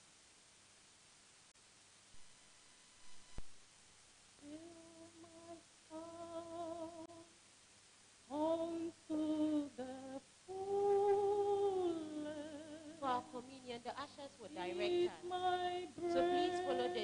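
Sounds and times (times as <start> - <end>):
woman singing a hymn: 4.4 - 7.3, 8.3 - 17.0.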